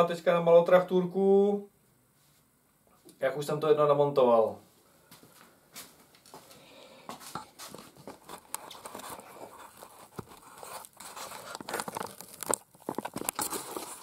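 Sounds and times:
camera handling rustle: 0:07.6 - 0:14.0.

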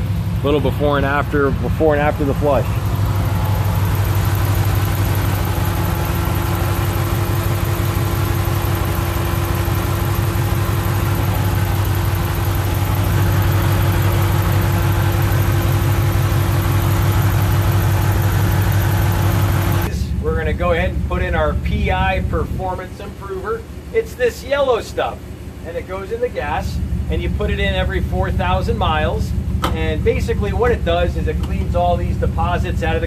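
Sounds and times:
engine idling close up: 0:00.0 - 0:33.0.

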